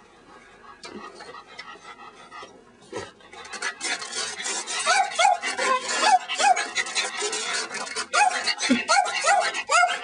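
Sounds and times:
dog yipping barks: 4.8s - 6.7s, 8.1s - 10.0s.

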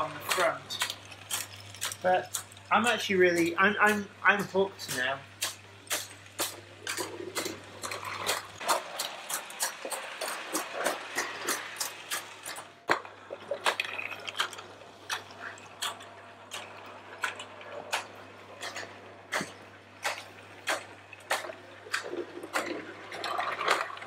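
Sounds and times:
toy steam locomotive chuffing: 6.8s - 12.8s.

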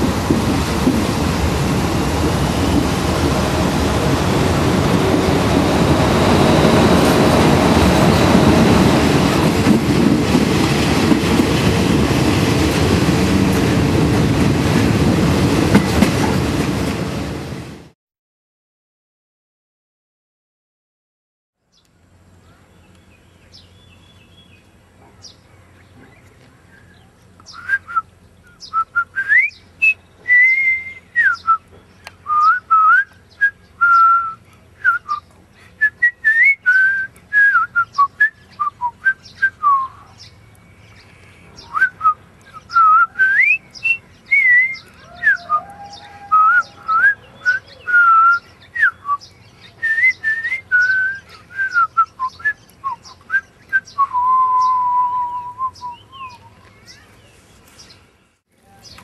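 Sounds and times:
man whistling a tune: 27.6s - 28.0s, 28.7s - 31.6s, 32.3s - 35.2s, 35.8s - 39.9s, 41.7s - 45.7s, 46.3s - 49.2s, 49.8s - 56.5s.

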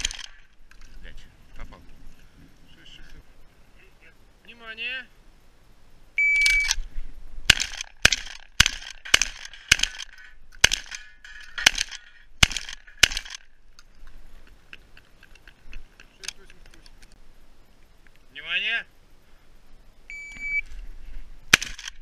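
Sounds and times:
shotgun shots: 0.0s - 0.4s, 7.5s - 13.5s, 21.5s - 22.0s
shot timer beep: 6.2s - 6.8s, 20.1s - 20.6s.

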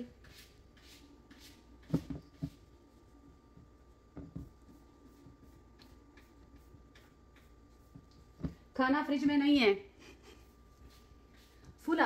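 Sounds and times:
soft knocks and rustles: 4.1s - 4.7s.

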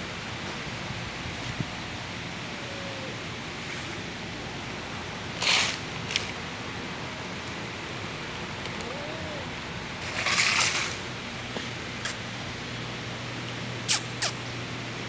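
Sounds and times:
faint cat meow: 2.6s - 3.2s, 8.7s - 9.5s
cat food scattering on concrete: 10.0s - 11.0s.

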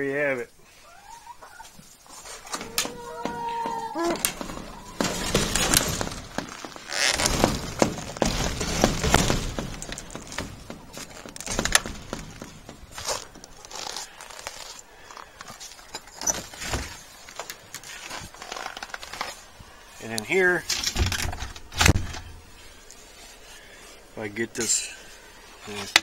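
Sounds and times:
door knocking and scraping: 2.5s - 13.6s.

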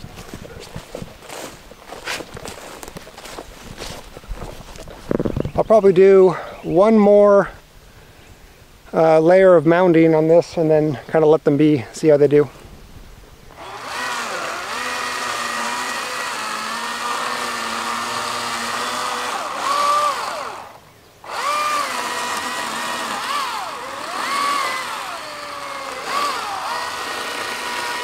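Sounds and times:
electric chainsaw whining: 13.5s - 28.0s.

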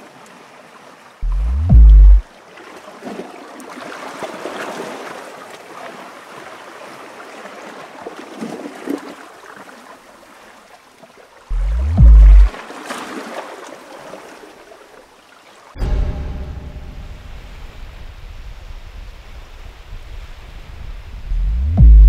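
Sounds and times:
wind: 0.0s - 22.0s
deep synthesized rising tone: 1.2s - 2.2s, 11.5s - 12.5s, 21.3s - 22.0s
water lapping against rocks: 2.2s - 15.8s.

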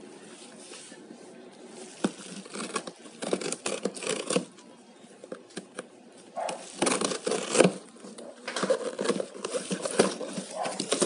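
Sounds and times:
cardboard box handling and tearing: 1.8s - 4.6s, 5.3s - 11.0s.

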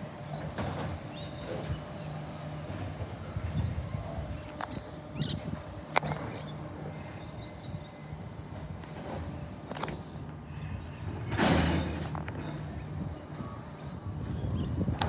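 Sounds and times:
distant truck engine running: 0.0s - 10.4s.

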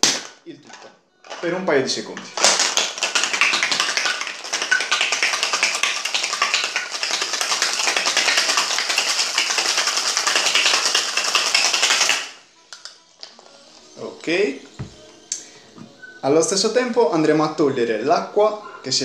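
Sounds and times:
ice rattling in cocktail shaker: 2.3s - 12.4s.

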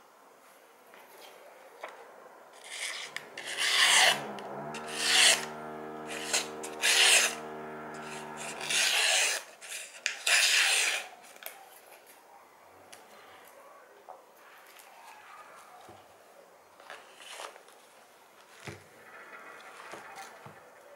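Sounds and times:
steady low hum: 2.1s - 9.4s.

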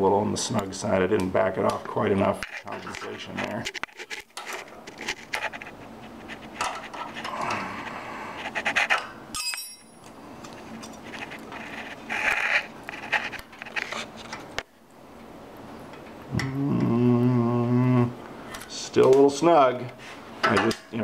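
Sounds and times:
person breathing: 7.2s - 8.6s
sharp metallic clink: 9.3s - 10.0s.

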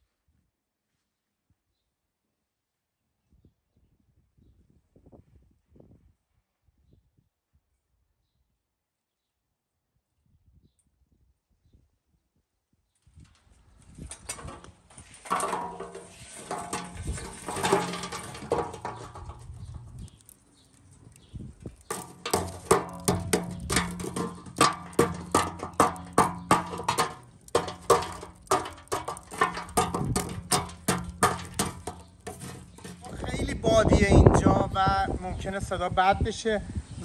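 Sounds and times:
charcoal rattling into grill: 14.0s - 33.9s
tongs clinking and scraping coals: 14.1s - 33.7s.

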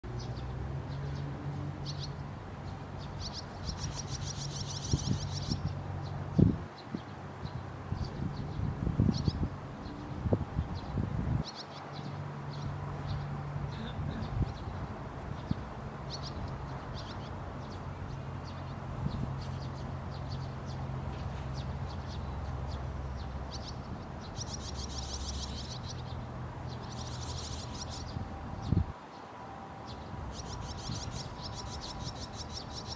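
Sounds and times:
fledgling birds begging calls: 1.8s - 10.2s, 10.8s - 28.8s, 29.9s - 32.9s
rapid begging chirps: 3.0s - 5.8s, 23.2s - 28.2s, 30.3s - 32.9s.

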